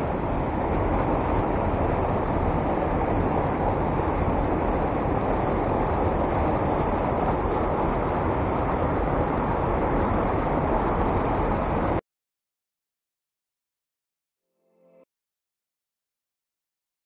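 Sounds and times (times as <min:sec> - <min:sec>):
floodwater rushing over a weir: 0:00.0 - 0:12.0.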